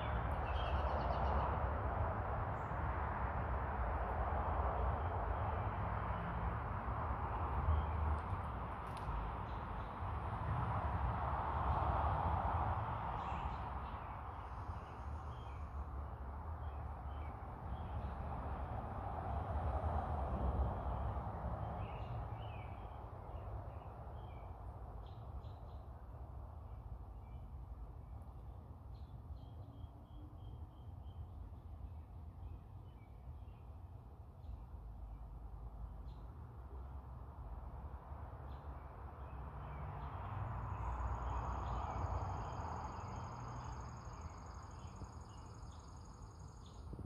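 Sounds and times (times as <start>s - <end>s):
songbirds chirping: 0.0s - 1.7s, 13.0s - 18.5s, 20.9s - 37.4s, 38.3s - 47.0s.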